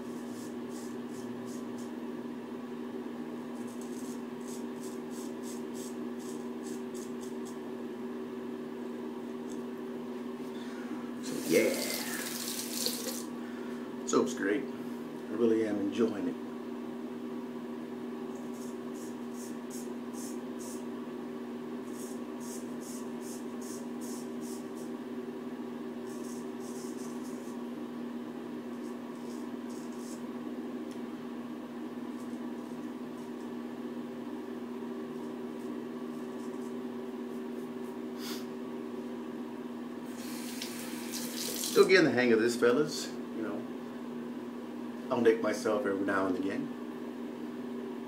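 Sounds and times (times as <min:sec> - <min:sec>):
steady electrical hum: 0:00.0 - 0:48.0
tap running: 0:11.3 - 0:13.3.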